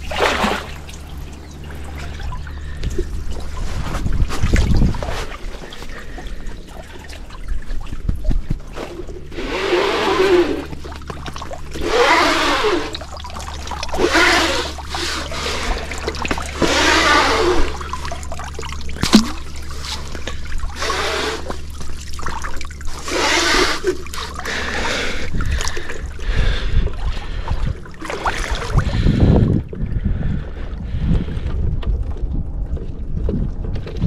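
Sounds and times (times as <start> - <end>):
wind rumble on microphone: 0.0 - 10.9, 25.1 - 34.0
water splashing and trickling: 0.0 - 34.0.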